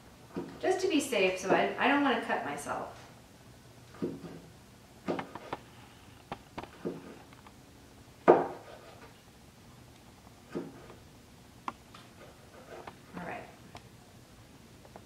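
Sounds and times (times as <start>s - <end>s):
knife knocking on cutting board: 8.3s - 8.6s.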